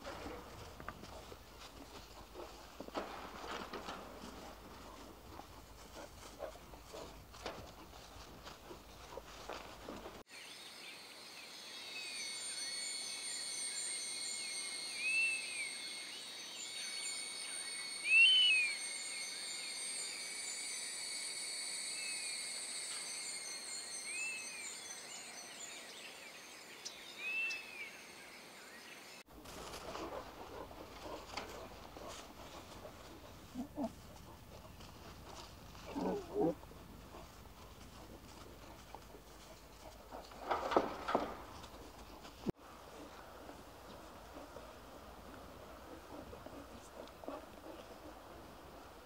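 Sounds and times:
soft patter and rustling: 0.0 - 10.2, 29.3 - 48.5
insects trilling: 10.3 - 28.4, 29.6 - 41.9
bird chirping: 11.4 - 19.8.

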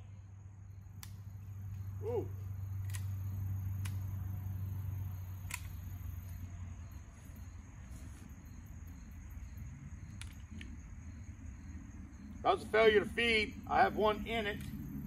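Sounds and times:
low steady hum: 0.0 - 15.0
faint pistol clicks: 2.8 - 4.1, 5.4 - 5.9.

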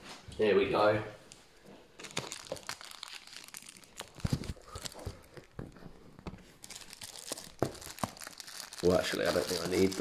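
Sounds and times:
packaging crinkling and rustling: 1.9 - 10.0
small knocks and crackles: 3.9 - 8.4.

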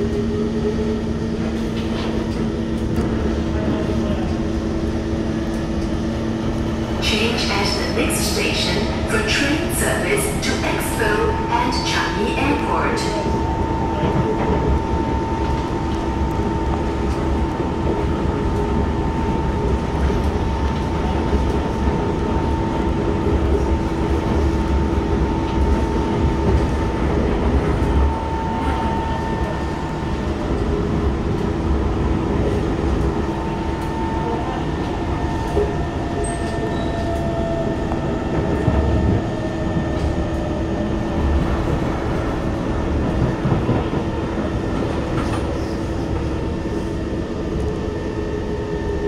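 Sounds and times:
train wheels rumbling on rails: 0.0 - 49.0.

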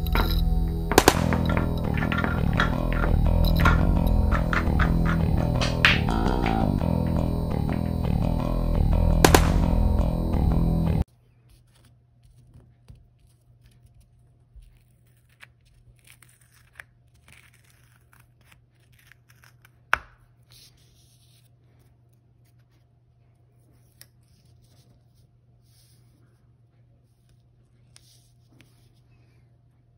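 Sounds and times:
guitar intro music: 0.0 - 11.0.

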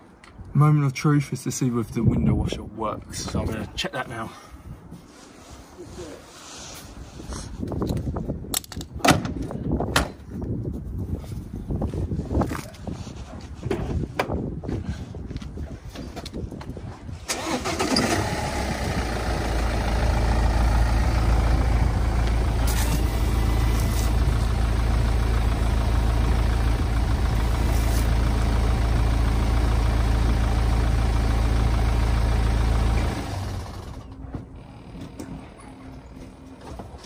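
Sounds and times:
car engine idling: 17.4 - 35.2.

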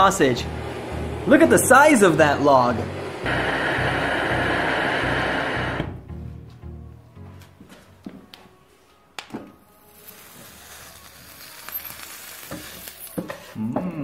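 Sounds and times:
sausage sizzling against hot knife: 9.8 - 13.6.

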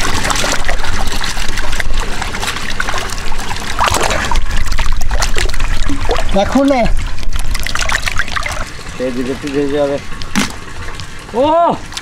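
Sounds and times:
water sloshing in metal pot: 0.0 - 9.4
water dripping and trickling: 0.0 - 12.0.

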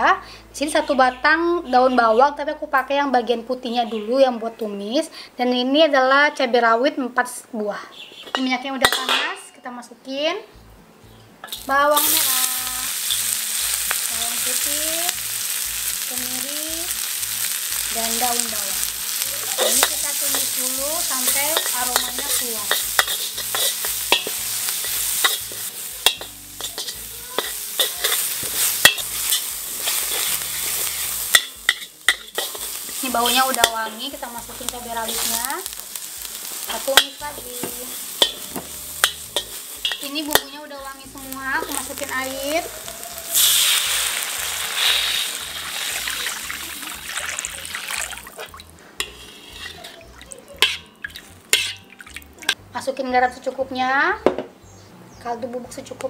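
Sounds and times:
shallots and garlic sizzling in oil: 7.9 - 54.2
metal spatula clacking on wok: 8.3 - 9.3, 18.8 - 30.4, 31.3 - 33.9, 36.8 - 40.6, 49.0 - 50.0, 50.6 - 52.6
water splashing into hot wok: 11.5 - 33.8, 43.2 - 48.7.

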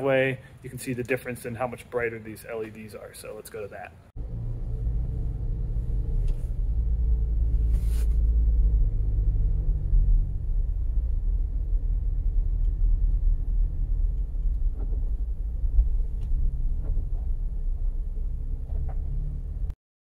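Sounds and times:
car engine rumble: 4.1 - 19.8.

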